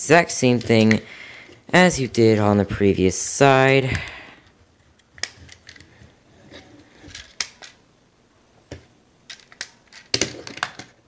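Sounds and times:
plastic parts clicking and snapping: 4.9s - 6.0s, 7.0s - 7.8s, 8.7s - 11.0s.

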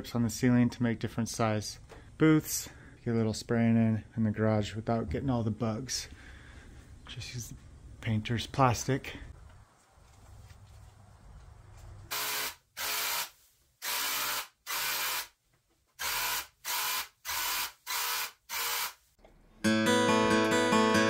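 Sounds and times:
spray paint hissing bursts: 12.1s - 15.3s
strummed acoustic guitar music: 19.6s - 21.0s.

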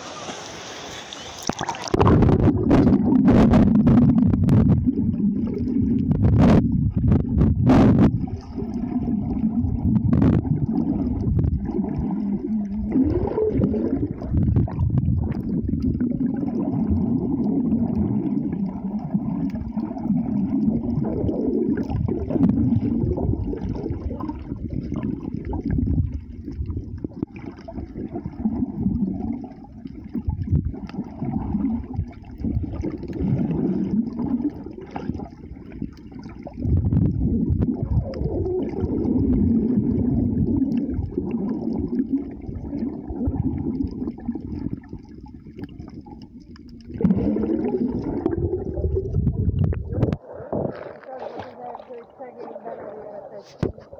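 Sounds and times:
underwater water sloshing and gurgling: 0.0s - 53.9s.

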